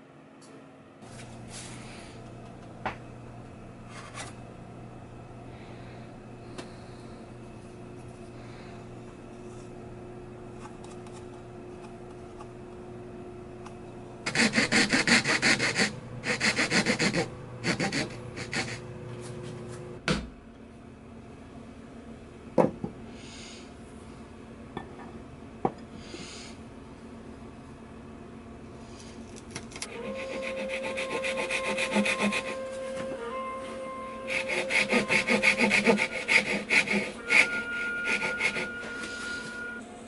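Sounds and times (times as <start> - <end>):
steady low hum: 0.0 - 40.0
hand file rasping on wood: 14.3 - 18.8, 29.9 - 32.9, 34.3 - 38.9.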